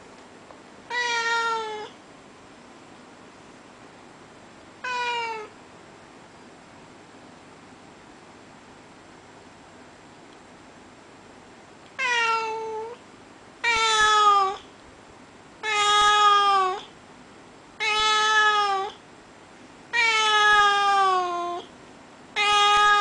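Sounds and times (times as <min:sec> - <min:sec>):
cat meowing: 0:00.9 - 0:02.0, 0:04.8 - 0:05.6, 0:12.0 - 0:13.0, 0:13.6 - 0:14.7, 0:15.6 - 0:16.9, 0:17.8 - 0:19.0, 0:19.9 - 0:21.7, 0:22.4 - 0:23.0.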